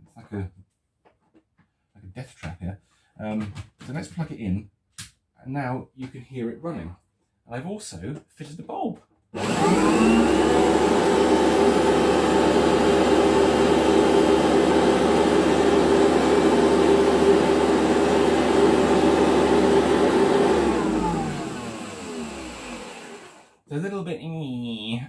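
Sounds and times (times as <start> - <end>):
vacuum cleaner motor whining: 9.4 - 23.6.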